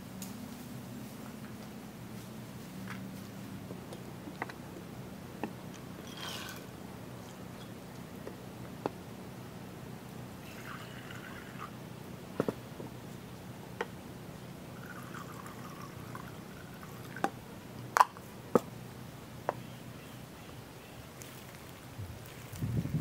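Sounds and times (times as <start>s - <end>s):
water pouring into a pot: 14.8s - 17.2s.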